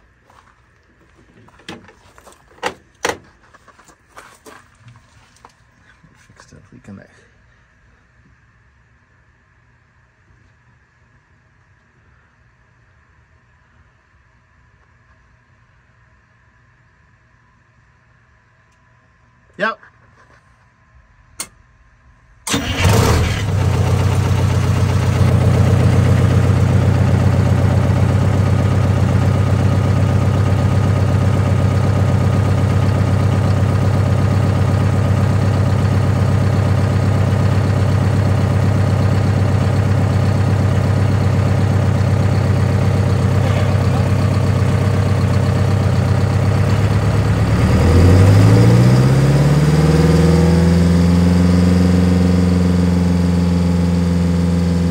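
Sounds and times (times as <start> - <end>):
bus engine starting and idling: 22.4 - 54.9.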